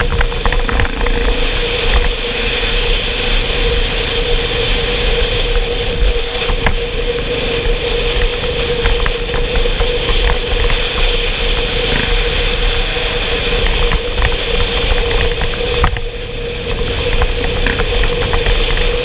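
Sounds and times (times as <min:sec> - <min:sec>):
motorcycle engine running: 0:00.0 - 0:19.0
wind and road noise: 0:00.0 - 0:19.0.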